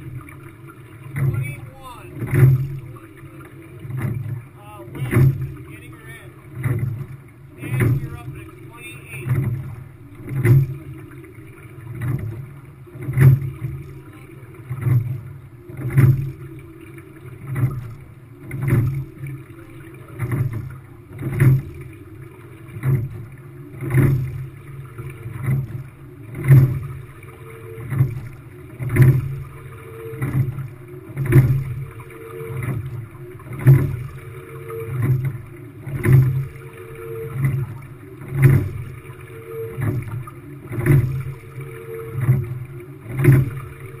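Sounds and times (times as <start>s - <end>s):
water rushing past: 0.0s - 17.9s
low rumble through hull: 0.0s - 44.0s.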